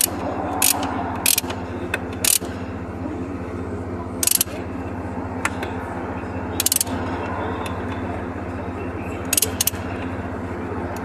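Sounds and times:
low mechanical drone: 0.0 - 11.0
ratcheting wrench clicking: 2.2 - 2.5, 4.2 - 4.6, 6.6 - 6.9, 9.3 - 9.8.

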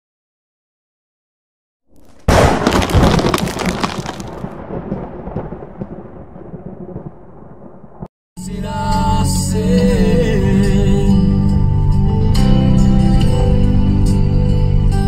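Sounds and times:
thunderclap rolling into rumble: 2.3 - 8.1.

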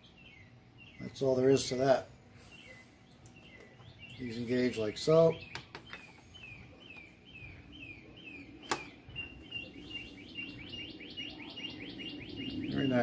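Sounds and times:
bird chirping: 0.0 - 13.0.

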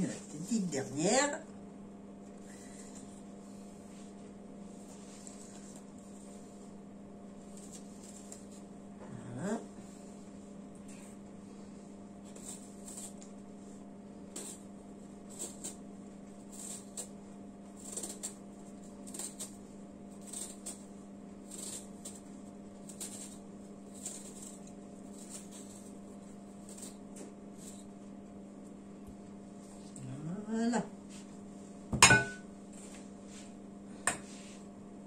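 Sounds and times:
steady low hum: 0.0 - 35.0
knife peeling fruit skin: 7.4 - 8.7, 12.2 - 13.4, 14.2 - 28.0.

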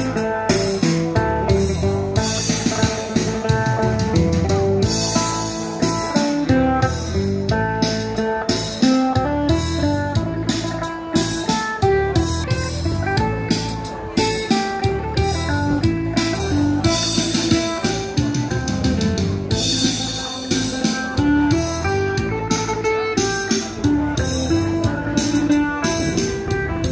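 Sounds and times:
plucked lute melody: 0.0 - 26.9.

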